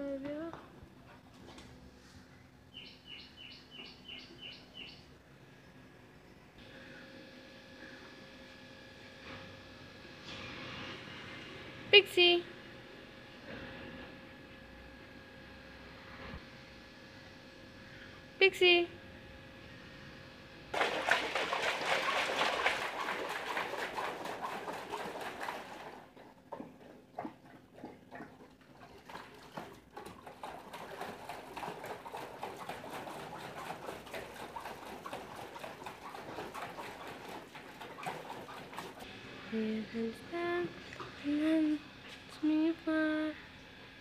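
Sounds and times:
water splashing in a tray: 20.8s - 26.7s, 28.7s - 39.1s
running water: 20.8s - 39.1s.

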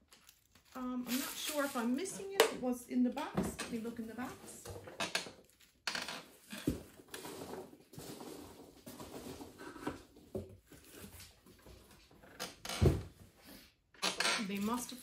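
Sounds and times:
cardboard rustling and scraping: 6.3s - 12.1s.

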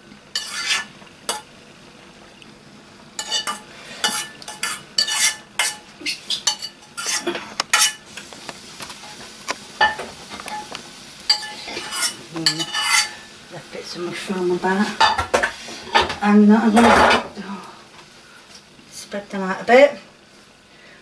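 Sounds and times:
faint steady hiss: 0.0s - 21.0s
metal spoon scraping a pan: 0.3s - 1.5s, 3.2s - 8.3s, 9.0s - 13.3s.

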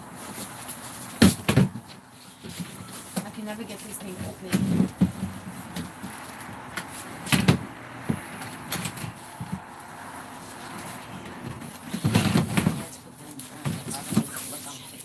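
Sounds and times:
knocks and clunks: 1.2s - 3.4s, 4.0s - 9.8s, 10.7s - 13.0s.

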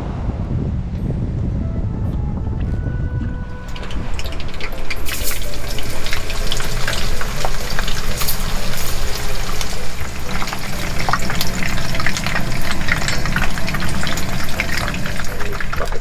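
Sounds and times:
fish deep-frying in oil: 3.4s - 16.0s.

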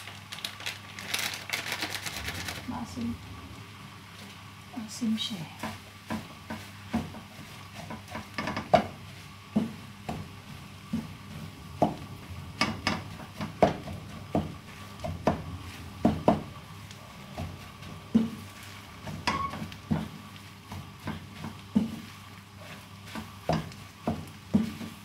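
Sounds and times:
faint low hum: 0.1s - 5.6s
wooden spatula scraping a frying pan: 5.6s - 25.0s.

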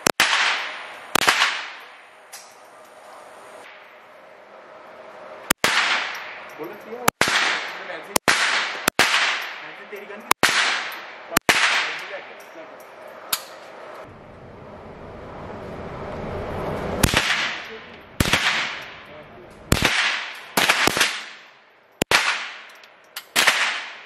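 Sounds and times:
low rumble: 12.9s - 19.8s.

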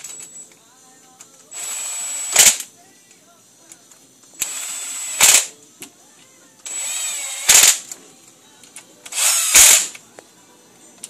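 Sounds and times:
cordless drill driving bolts: 4.4s - 5.5s, 6.7s - 7.8s, 9.1s - 9.9s.

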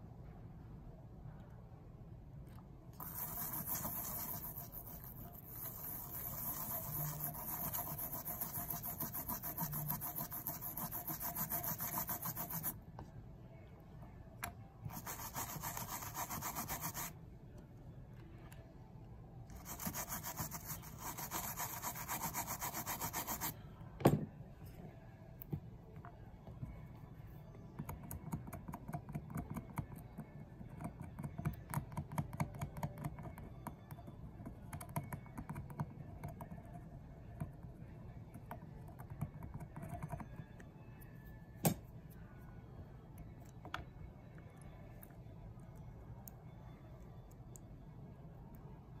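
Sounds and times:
toothbrush scrubbing circuit board: 3.0s - 12.8s, 14.9s - 17.1s, 19.6s - 23.6s.

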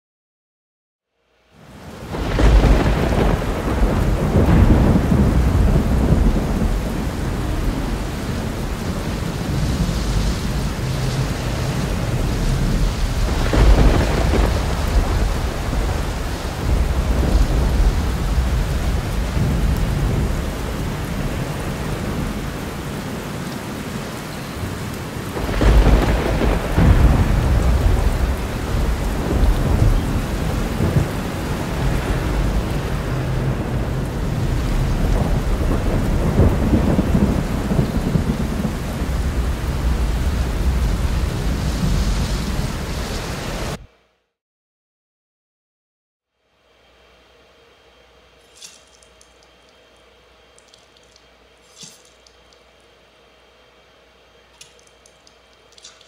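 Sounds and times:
heavy rain: 1.4s - 43.8s
thunder rolling: 2.0s - 23.0s, 24.6s - 42.9s.

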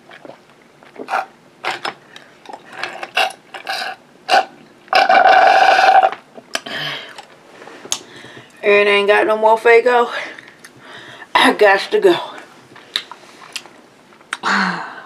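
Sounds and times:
mouth smacking: 0.0s - 7.3s.

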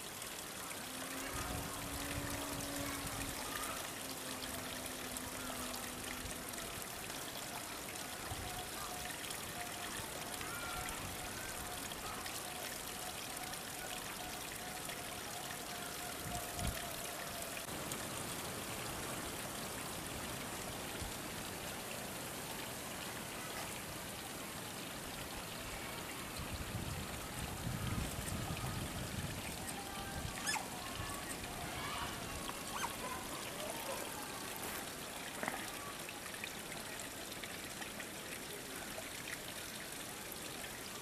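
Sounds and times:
running water: 0.0s - 41.0s.

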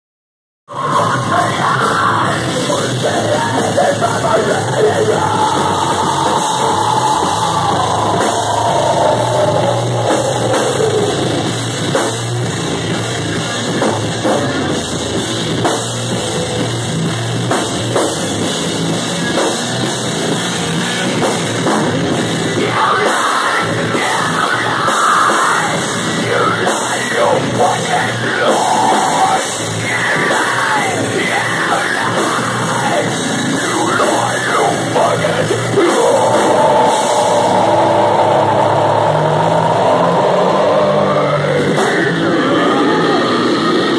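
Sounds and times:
person singing: 0.7s - 11.5s, 22.5s - 43.9s
live rock band playing: 0.7s - 43.9s.

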